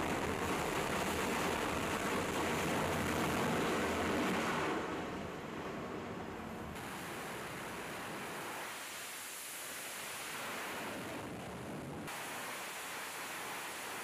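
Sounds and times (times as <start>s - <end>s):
jet engines roaring: 0.0s - 8.8s.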